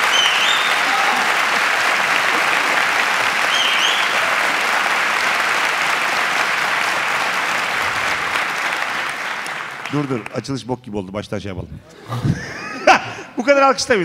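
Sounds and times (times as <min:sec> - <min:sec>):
high whistle: 0:00.0 - 0:00.8, 0:03.4 - 0:04.2
audience applauding: 0:00.0 - 0:10.6.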